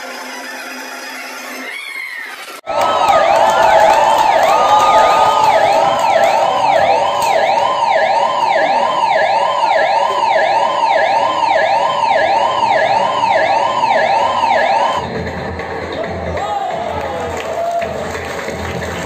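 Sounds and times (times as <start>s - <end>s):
electronic siren wailing: 1.6s - 15.1s.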